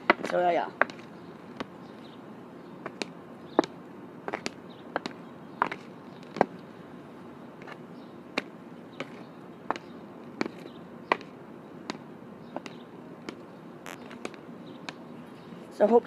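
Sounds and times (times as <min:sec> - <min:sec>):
hockey stick tapping ball on asphalt: 0:00.0 - 0:01.8, 0:02.8 - 0:06.6, 0:08.4 - 0:15.0.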